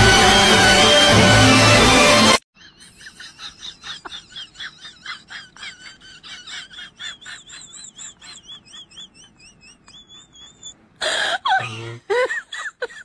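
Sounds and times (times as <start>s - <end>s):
rapid chirping calls: 7.1s - 10.8s.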